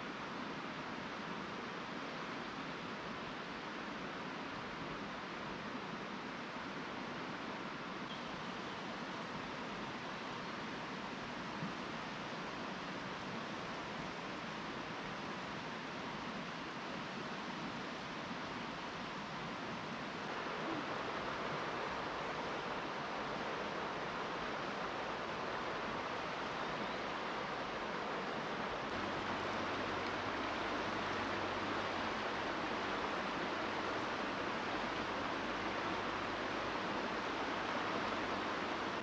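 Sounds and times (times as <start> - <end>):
fast-flowing river rushing: 10.7 - 39.0.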